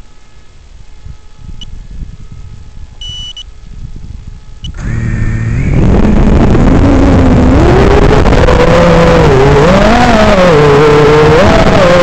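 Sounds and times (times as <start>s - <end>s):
quadcopter motors whining: 4.4s - 12.0s.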